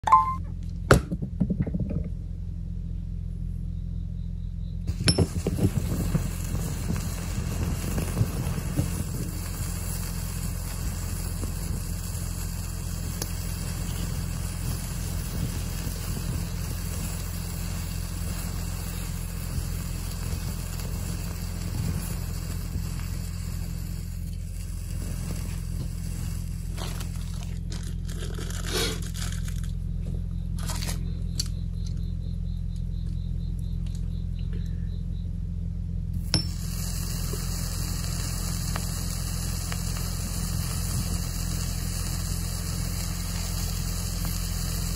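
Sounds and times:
sharp metal clinks: 0.0 - 0.4, 4.9 - 5.5, 36.2 - 36.8
constant low hum: 0.0 - 44.9
firework tablets hissing and crackling: 4.9 - 31.5, 36.2 - 44.9.

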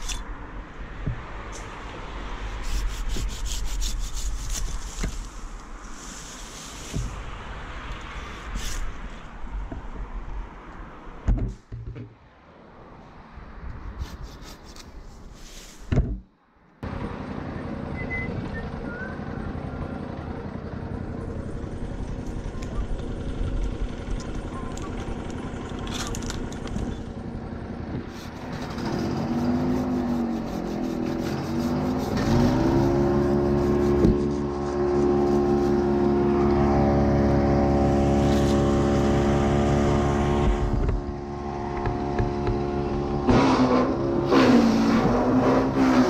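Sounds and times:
petrol engine running: 16.8 - 43.4.

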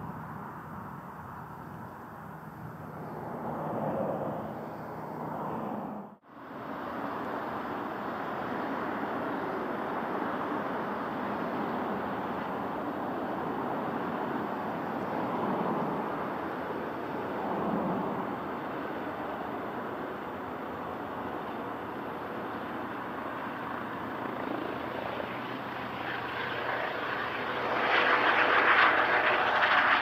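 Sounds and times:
aircraft engines passing: 0.0 - 30.0.

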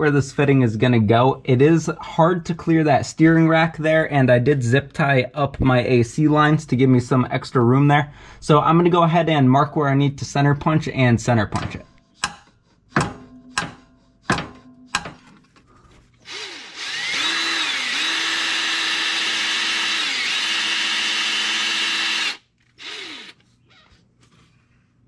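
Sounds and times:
hammer tapping on punch: 12.2 - 15.3
power drill boring into metal: 16.2 - 23.4.

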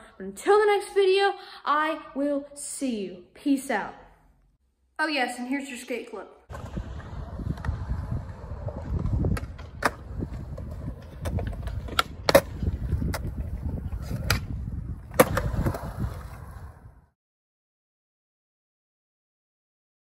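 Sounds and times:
skateboard wheels rolling on concrete: 6.5 - 17.2
skateboard clacking on concrete: 9.0 - 14.5.

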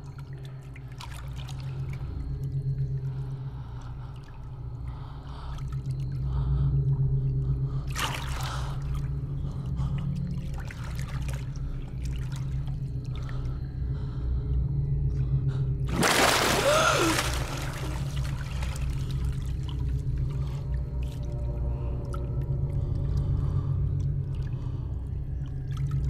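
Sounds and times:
low steady hum: 0.0 - 26.0
pool water lapping and splashing: 15.9 - 21.3.

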